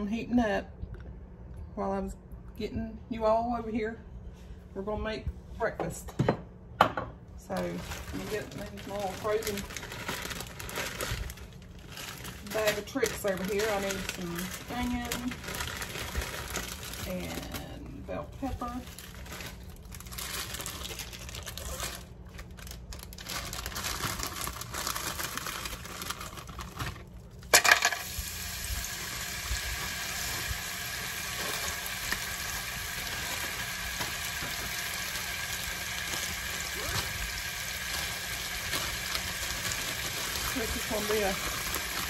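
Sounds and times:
pepper sizzling in hot oil: 27.6 - 42.0.

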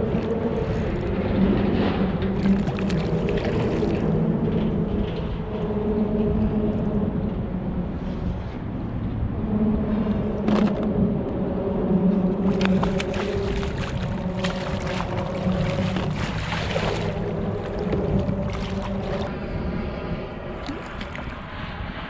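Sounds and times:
steady low hum: 0.0 - 22.0
water noise: 0.0 - 22.0
fish splashing at surface: 12.5 - 19.3.

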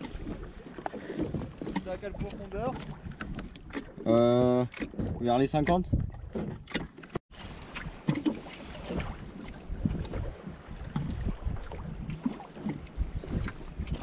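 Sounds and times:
water lapping against kayak hull: 0.0 - 14.0
wind on microphone: 5.0 - 6.4, 7.4 - 14.0.

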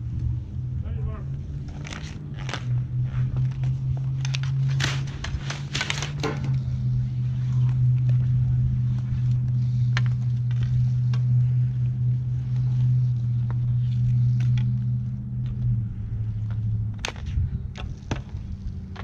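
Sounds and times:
low hum: 0.0 - 19.0
hockey sticks and puck clacking: 16.6 - 19.0.

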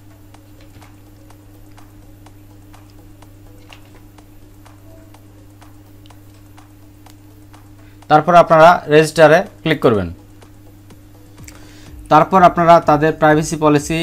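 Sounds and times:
steady low hum: 0.0 - 14.0
light ticking: 0.1 - 8.1.

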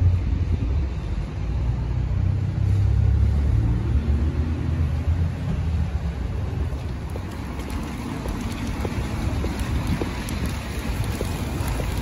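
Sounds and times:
wind rumbling on microphone: 0.0 - 12.0
car driving past on wet road: 1.6 - 12.0
steady rain: 4.5 - 12.0.

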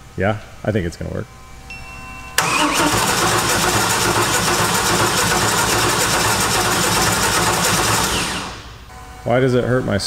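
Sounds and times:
starter cranking engine: 2.4 - 8.6.

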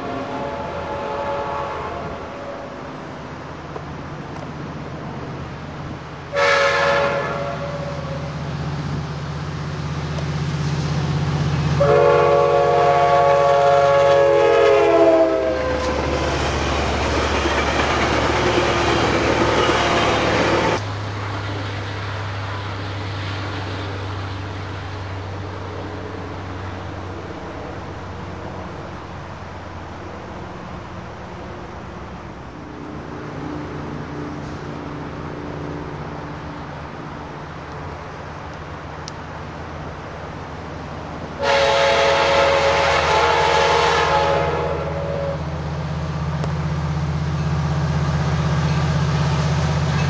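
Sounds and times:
train chime horn: 0.0 - 2.7, 6.3 - 8.3, 11.8 - 16.0, 41.4 - 45.4
locomotive engine rumble: 0.0 - 50.0
train wheels clattering: 15.6 - 22.0, 46.2 - 50.0.

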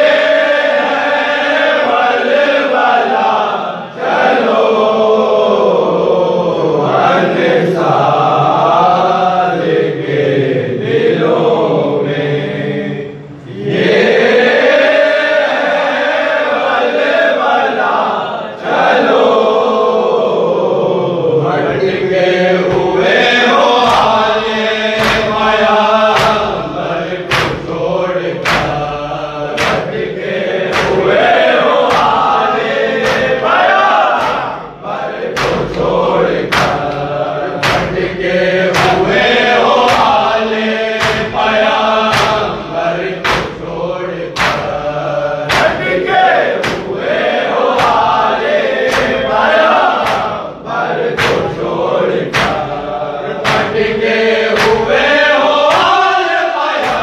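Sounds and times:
men chanting together: 0.0 - 57.0
hands beating on chests: 25.0 - 27.8, 28.4 - 28.9, 29.5 - 30.0, 30.7 - 34.6, 35.4 - 37.0, 37.6 - 39.2, 39.8 - 40.3, 41.0 - 43.8, 44.4 - 44.9, 45.5 - 47.0, 47.7 - 48.2, 48.8 - 50.4, 51.2 - 51.6, 52.3 - 52.8, 53.4 - 54.0.

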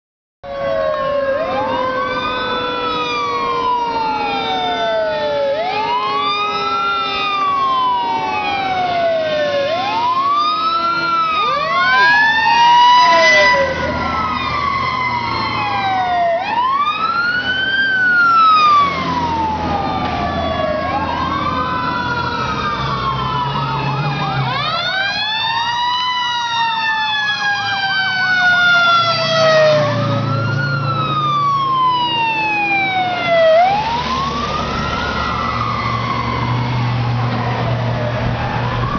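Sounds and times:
fire truck sirens wailing: 0.4 - 38.9
lower siren tone falling: 0.4 - 38.9.

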